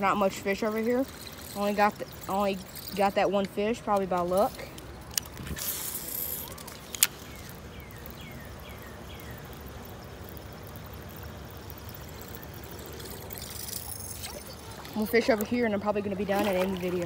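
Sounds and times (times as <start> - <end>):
faint outdoor background: 0.0 - 17.0
fishing reel click: 0.2 - 8.3, 9.2 - 14.6.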